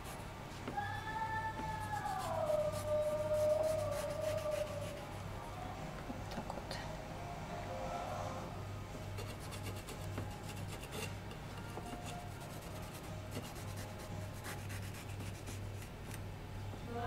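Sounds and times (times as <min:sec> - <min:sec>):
knife scraping vegetable skin: 0:10.4 - 0:11.2.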